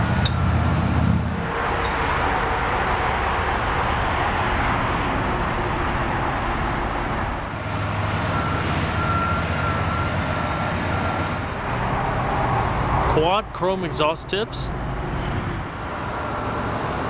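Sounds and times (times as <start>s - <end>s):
low engine hum: 0.0s - 13.6s
road traffic rush: 0.0s - 17.0s.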